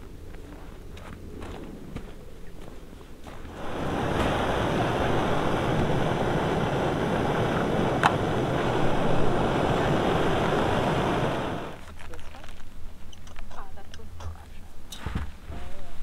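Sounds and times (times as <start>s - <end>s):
gas stove burner hissing: 3.5s - 11.8s.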